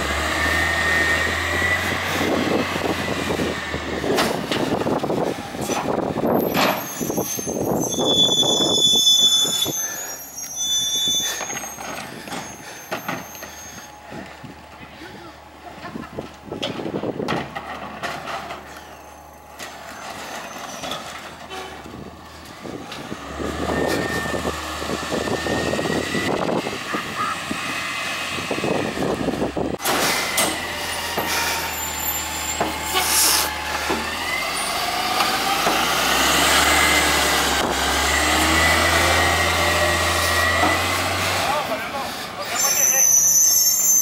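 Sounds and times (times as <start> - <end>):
engine revving: 0.0 - 6.7, 22.9 - 42.4
hydraulics whining: 0.0 - 44.0
air brake hiss: 31.1 - 34.0.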